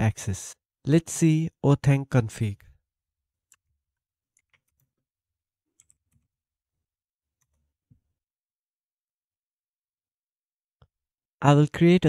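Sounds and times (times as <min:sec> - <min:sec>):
keyboard keys typing: 0:04.3 - 0:05.0, 0:05.7 - 0:06.4.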